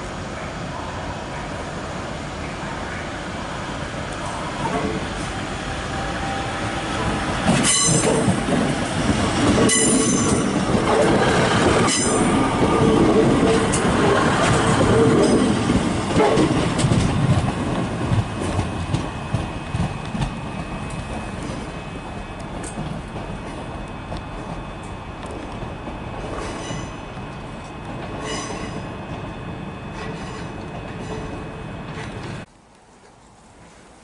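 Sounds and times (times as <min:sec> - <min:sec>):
train wheel and rail rumble: 0:00.0 - 0:34.0
sharp train clanks: 0:06.3 - 0:32.5
wheel squeal: 0:26.4 - 0:27.0, 0:30.0 - 0:31.4.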